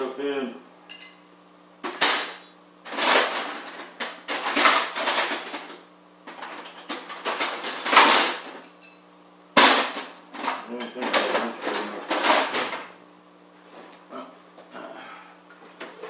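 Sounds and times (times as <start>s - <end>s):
metal tools clinking in a drawer: 1.9s - 8.6s, 9.6s - 12.8s.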